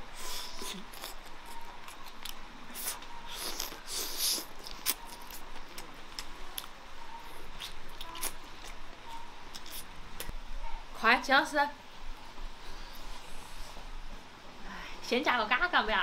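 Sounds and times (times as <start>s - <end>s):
teeth gnawing meat off bone: 0.4s - 6.8s.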